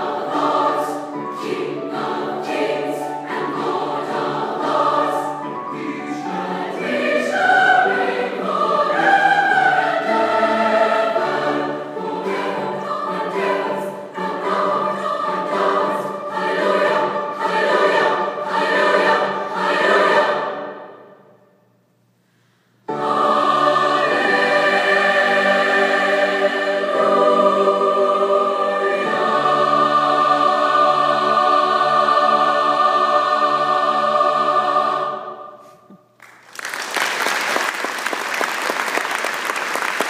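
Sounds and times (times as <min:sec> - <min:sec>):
choir holding a chord: 0:00.0 - 0:21.4, 0:22.9 - 0:35.9
applause: 0:36.2 - 0:40.0.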